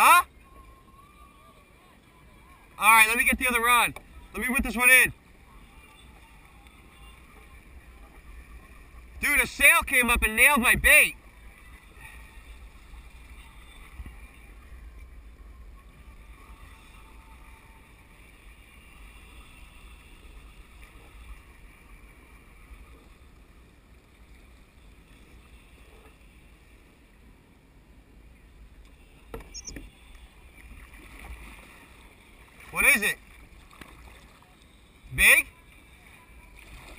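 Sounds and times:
sea water against kayak hull: 0.0 - 36.9
short squeak: 29.4 - 30.0.

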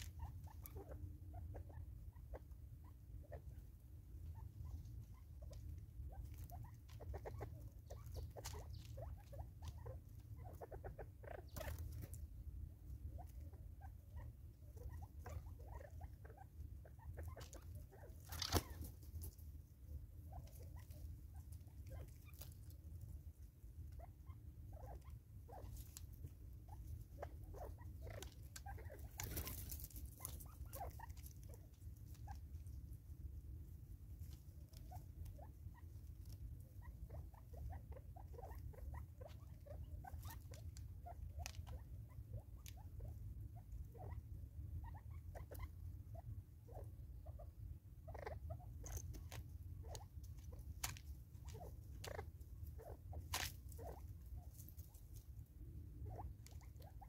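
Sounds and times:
bird scratching in dry leaves: 17.4 - 19.5, 28.2 - 32.3.

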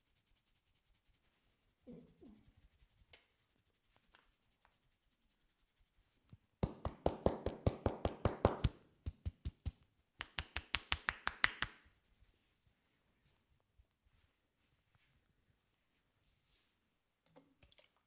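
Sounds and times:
hands tapping rapidly on head: 6.6 - 11.8.

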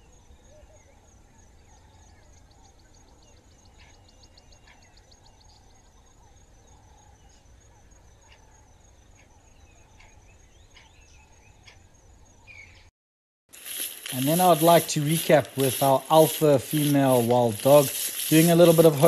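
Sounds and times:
rapid high ticking: 13.5 - 19.0.

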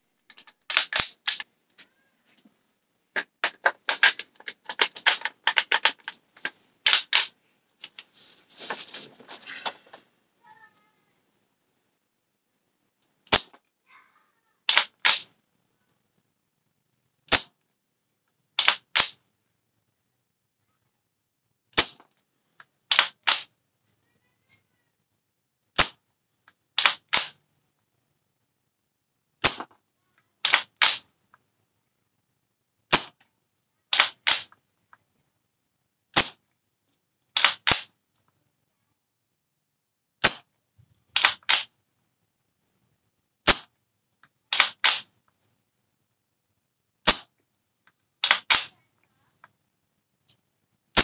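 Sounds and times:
airsoft rifle shots: 0.7 - 1.4, 6.8 - 7.3, 13.3 - 13.6, 14.7 - 15.3, 17.3 - 17.6, 18.6 - 19.2, 21.8 - 22.0, 22.9 - 23.5, 25.8 - 26.0, 26.8 - 27.4, 29.4 - 29.7, 30.4 - 31.1, 33.9 - 34.5, 36.2 - 36.4, 37.4 - 37.9, 40.2 - 40.5, 41.2 - 41.7, 43.5 - 43.7, 44.5 - 45.1, 47.0 - 47.3, 48.2 - 48.7.

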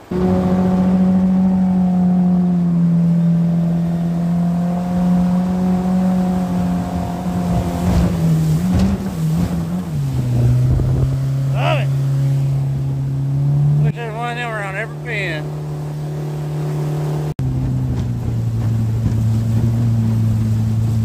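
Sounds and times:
outboard jet motor running hard: 0.0 - 21.0
rush of water: 0.0 - 21.0.

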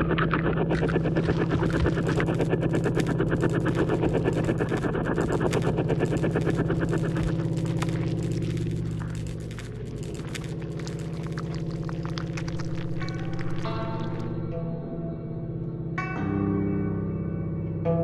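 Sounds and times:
rapid rattle of pulses: 0.0 - 14.4
low drone: 0.0 - 16.2.

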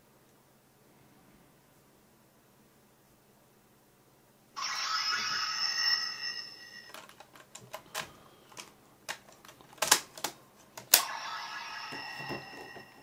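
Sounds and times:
toy speaker high electronic tones: 4.6 - 6.9
plastic clicks and rattles: 6.9 - 11.0.

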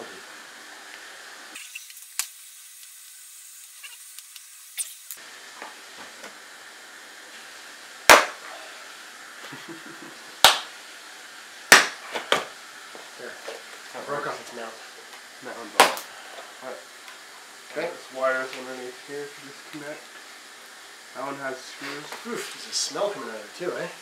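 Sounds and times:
loud sharp clacks: 8.1 - 8.4, 10.4 - 10.7, 11.7 - 12.0, 15.8 - 16.1.

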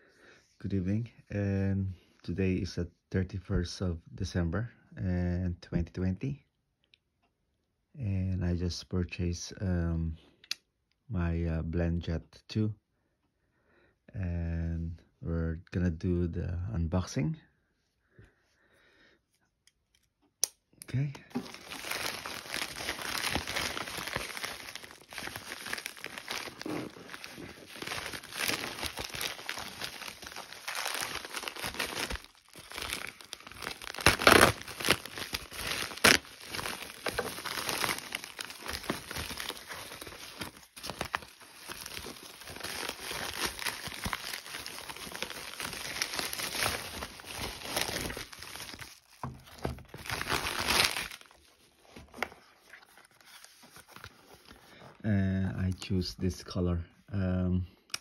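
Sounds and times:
paper rustling: 21.3 - 54.9
plastic mailer crinkling and tearing: 21.3 - 54.9.

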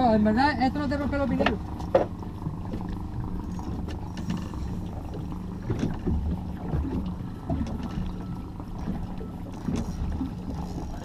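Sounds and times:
motorboat engine humming: 0.0 - 11.0
water lapping against hull: 0.0 - 11.0.

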